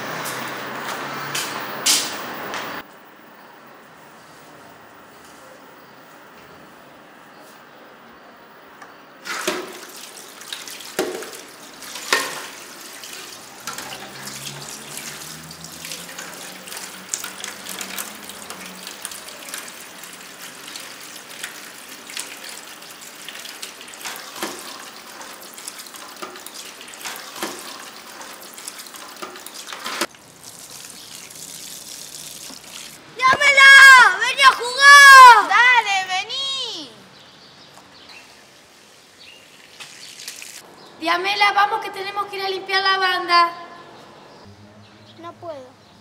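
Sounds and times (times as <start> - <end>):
tap water running into sink: 9.2 - 33.0
tap running into plastic basin: 9.3 - 19.8.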